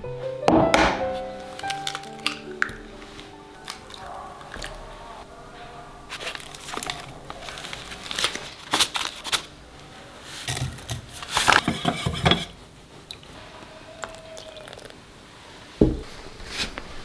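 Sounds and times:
plastic packet rustling: 0:01.2 - 0:05.1, 0:06.1 - 0:09.6
chopsticks stirring water: 0:01.4 - 0:05.2.

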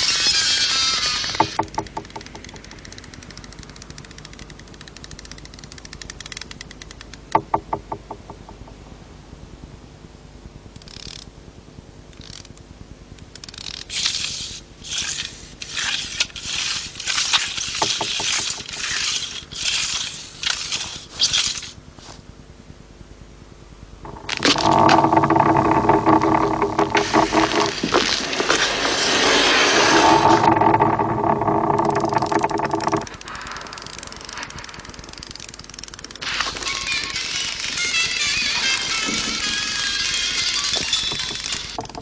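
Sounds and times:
faint rapid clicking: 0:01.2 - 0:08.8, 0:29.8 - 0:36.8
rough scrapes: 0:24.1 - 0:34.6.

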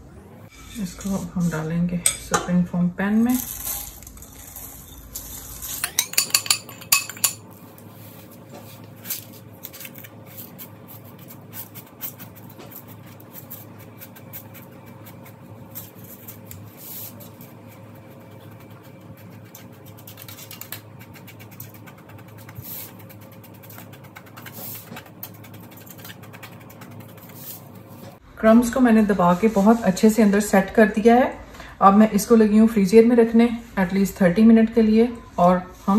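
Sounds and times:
spoon scraping in metal pan: 0:00.5 - 0:02.5
spoon clinking on glass bowl: 0:05.8 - 0:07.4.

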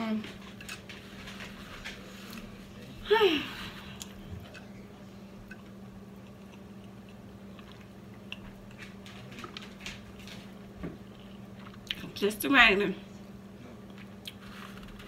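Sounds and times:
steady low hum: 0:00.0 - 0:15.0
person chewing food: 0:03.7 - 0:12.0.

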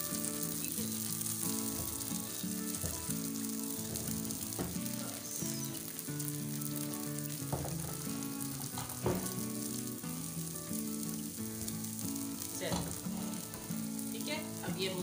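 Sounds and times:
batter sizzling in hot oil: 0:00.0 - 0:15.0.

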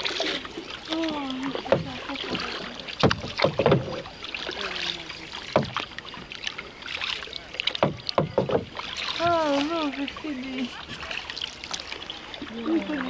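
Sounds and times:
oars splashing and knocking: 0:00.0 - 0:13.0.

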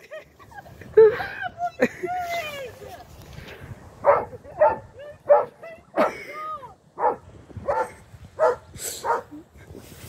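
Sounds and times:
dog barking: 0:04.0 - 0:05.5, 0:07.0 - 0:09.3.

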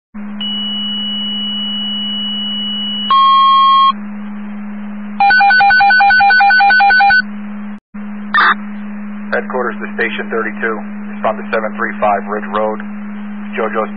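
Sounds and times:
steady low hum: 0:00.2 - 0:13.9
pulsing alert beeps: 0:00.4 - 0:04.0, 0:08.4 - 0:08.6
alert tones over radio: 0:08.4 - 0:08.6.

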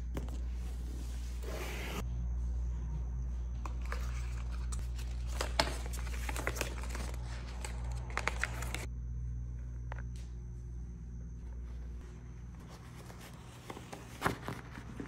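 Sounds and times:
low steady hum: 0:00.0 - 0:15.0
cardboard packaging being handled: 0:04.7 - 0:08.9, 0:12.6 - 0:15.0.

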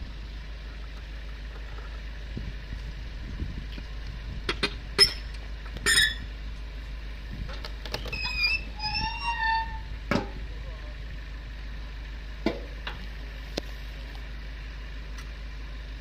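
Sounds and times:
tractor engine idling: 0:00.0 - 0:16.0
short high squeaks: 0:05.0 - 0:06.3, 0:07.9 - 0:10.0.

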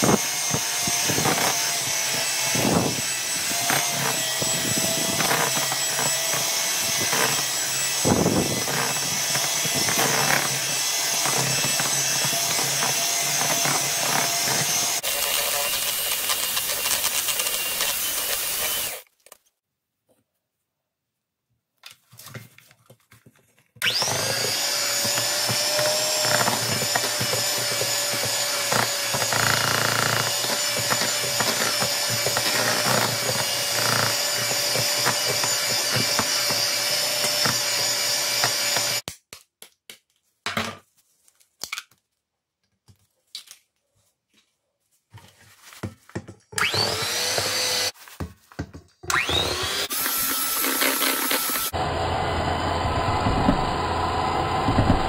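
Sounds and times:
electric hand mixer whirring: 0:00.0 - 0:19.1, 0:23.8 - 0:39.0, 0:46.5 - 0:48.0, 0:49.0 - 0:55.0.

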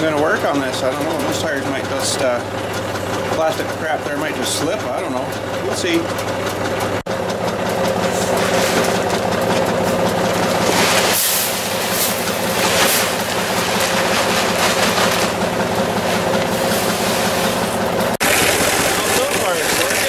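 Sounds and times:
tractor diesel engine idling: 0:00.0 - 0:20.0
pellets poured into plastic hopper: 0:10.6 - 0:15.5, 0:18.2 - 0:20.0.

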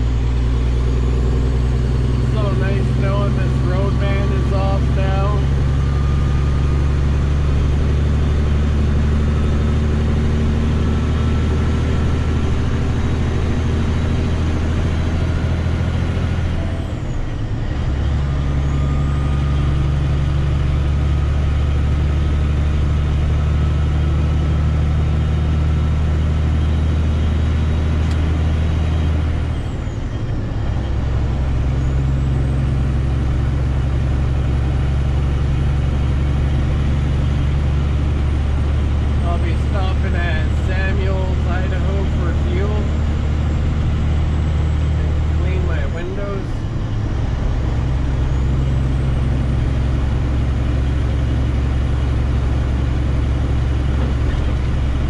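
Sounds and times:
truck diesel engine running: 0:00.0 - 0:55.0.

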